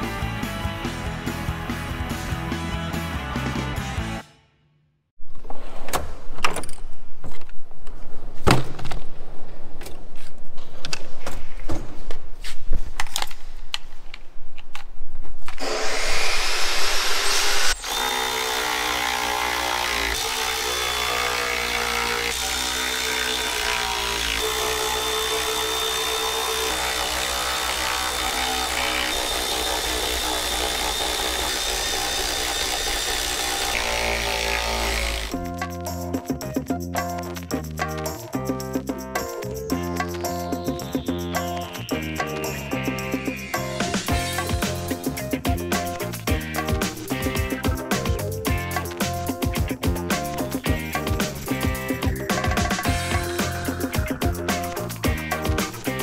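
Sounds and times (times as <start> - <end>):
background music with chords: 35.4 - 56.0.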